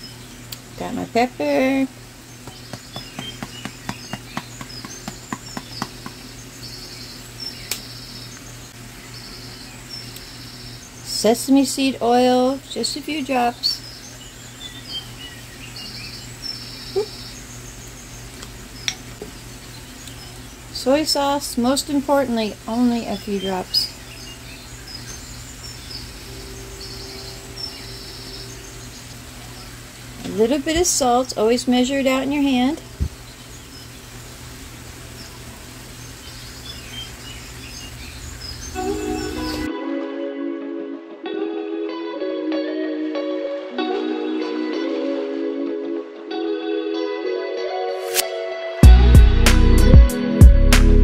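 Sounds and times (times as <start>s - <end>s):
faint high trilling chirps: 23.1s - 29.9s
low hum: 25.2s - 30.4s
vegetables sizzling in a pan: 32.9s - 39.7s.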